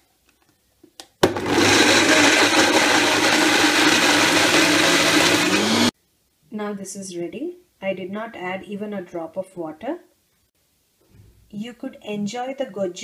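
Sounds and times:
blender grinding: 1.2s - 5.9s.

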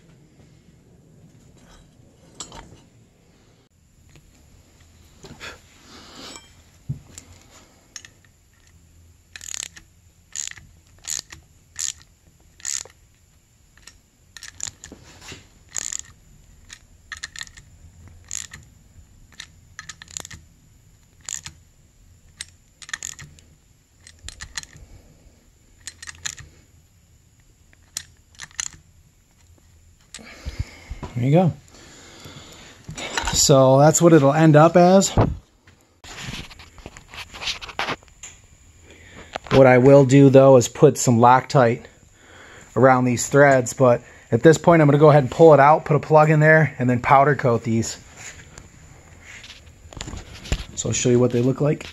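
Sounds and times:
socket wrench clicking: 7.9s - 15.0s, 15.6s - 18.7s, 19.3s - 20.5s, 21.1s - 21.6s, 22.2s - 23.4s, 24.0s - 24.8s, 25.8s - 26.5s, 27.7s - 28.8s.

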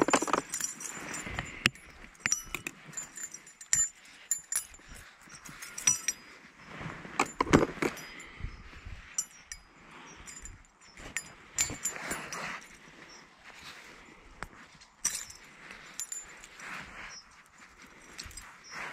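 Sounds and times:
metal lure clinking: 0.0s - 6.4s, 7.2s - 12.8s, 15.0s - 18.7s.

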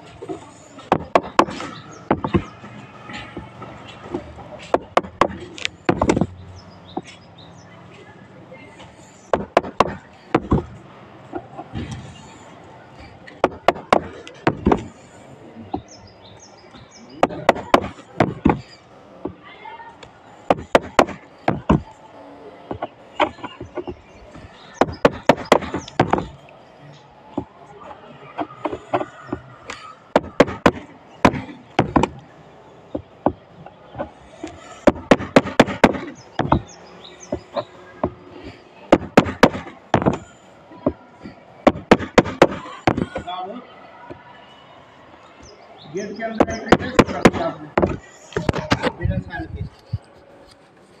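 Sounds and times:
bird chirping: 0.0s - 19.5s, 20.3s - 50.1s
hammer tapping on surface: 0.8s - 2.5s, 4.6s - 6.3s, 9.3s - 10.7s, 13.4s - 14.9s, 17.2s - 19.4s, 20.5s - 21.9s, 22.7s - 26.4s, 30.1s - 32.2s, 34.0s - 38.2s, 38.9s - 41.0s, 41.6s - 43.2s, 46.4s - 49.0s.

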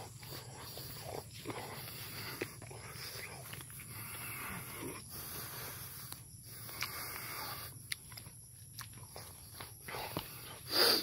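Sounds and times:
footsteps on grassy dirt track: 0.0s - 4.4s, 8.9s - 10.7s.

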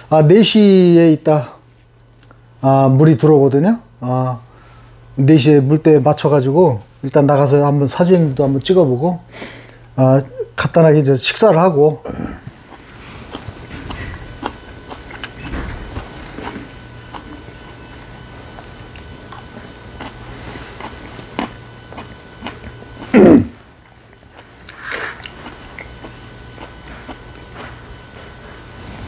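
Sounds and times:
person chewing: 12.1s - 23.3s, 24.1s - 29.0s.

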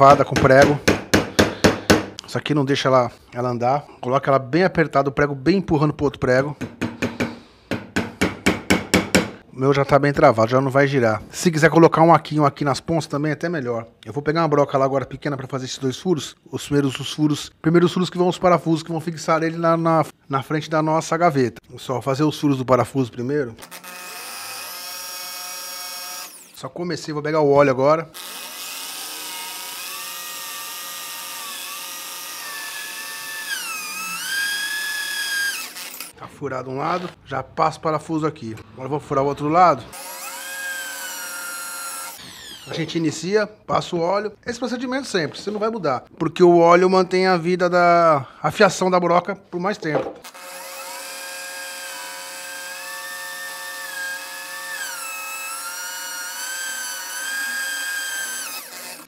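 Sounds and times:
electric drill drilling steel: 23.6s - 26.6s, 28.2s - 36.2s, 39.9s - 42.9s, 50.2s - 59.0s.

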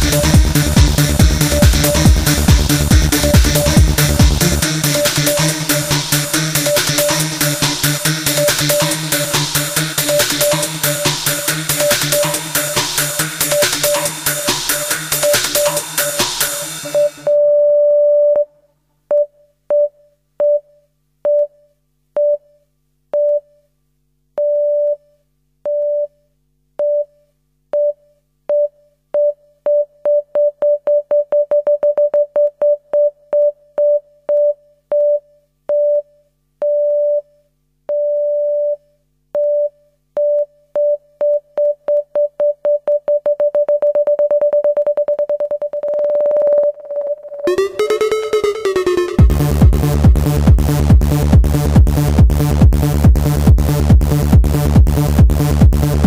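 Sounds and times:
repeated synthesizer beep: 16.8s - 17.4s, 43.1s - 50.3s.

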